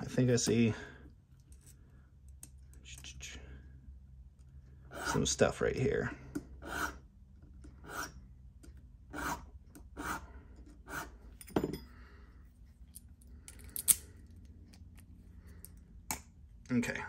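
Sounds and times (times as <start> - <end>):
hand file scraping metal: 7.8 - 8.2, 9.1 - 11.2.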